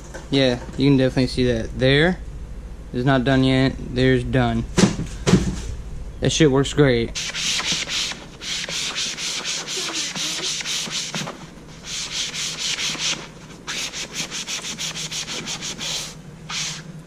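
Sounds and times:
sponge scrubbing leather seat: 0:07.2 - 0:16.8.

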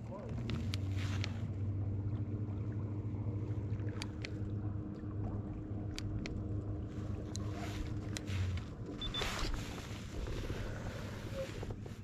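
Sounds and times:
electric trolling motor humming: 0:00.1 - 0:11.9
light clicks: 0:03.9 - 0:04.4, 0:05.9 - 0:06.4.

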